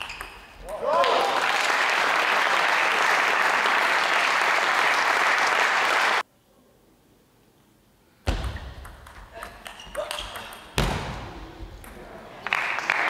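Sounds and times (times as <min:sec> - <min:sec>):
spectators clapping: 0:00.8 - 0:06.2, 0:12.4 - 0:13.0.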